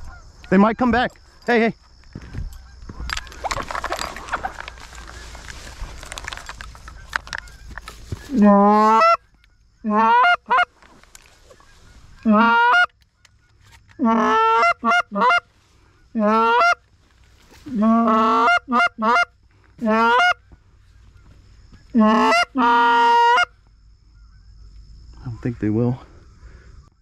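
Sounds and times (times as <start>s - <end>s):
goose call honks: 8.2s - 9.2s, 9.8s - 10.7s, 12.2s - 12.9s, 13.9s - 15.5s, 16.2s - 16.8s, 17.7s - 20.4s, 21.9s - 23.5s.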